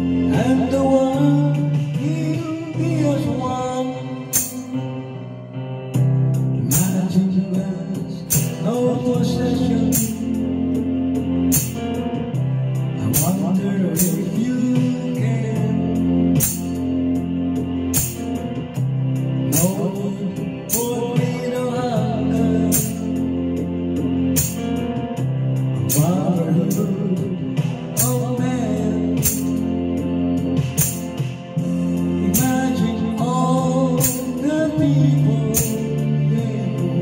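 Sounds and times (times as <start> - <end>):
man singing into a microphone: 0.0 - 5.2, 6.6 - 11.4, 12.9 - 16.7, 19.5 - 23.6, 25.9 - 30.1, 31.8 - 37.0
backing track: 0.0 - 37.0
sharp percussion strokes: 4.3 - 4.9, 8.3 - 8.8, 11.5 - 12.0, 16.4 - 17.0, 17.9 - 18.5, 22.7 - 23.2, 29.2 - 29.7, 30.6 - 32.8.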